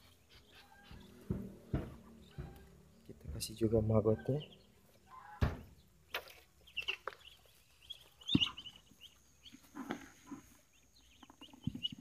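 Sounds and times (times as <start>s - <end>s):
ducks peeping: 0.0s - 12.0s
knocks: 0.9s - 3.5s.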